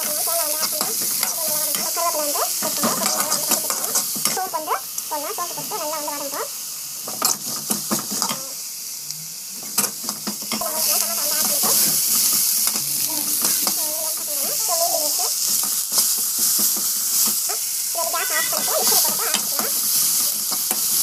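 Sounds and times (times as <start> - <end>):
ladle tapping pan: 0.0 - 4.7, 9.7 - 21.0
onions sizzling in oil: 0.0 - 21.0.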